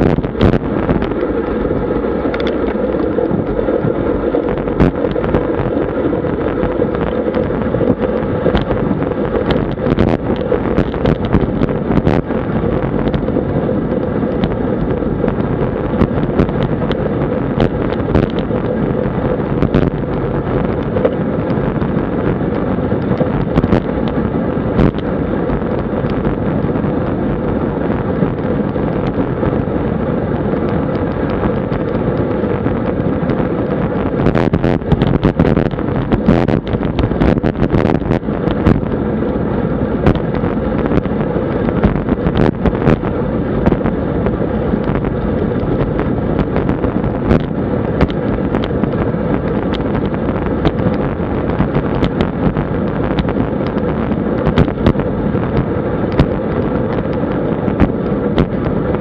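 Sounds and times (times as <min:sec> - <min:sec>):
wind rumbling on camera microphone: 0:00.0 - 0:59.0
sharp clicks and knocks: 0:44.8 - 0:59.0.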